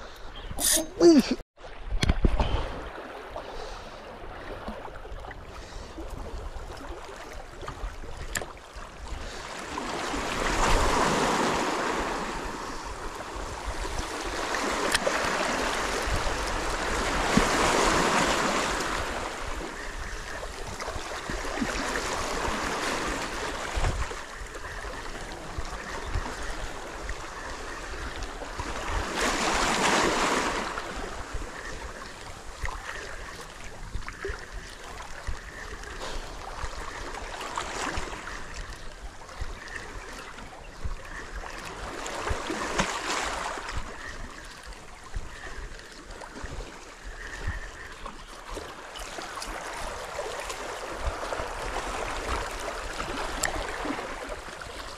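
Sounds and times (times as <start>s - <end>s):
sea waves washing against rocks: 9.5s - 34.6s.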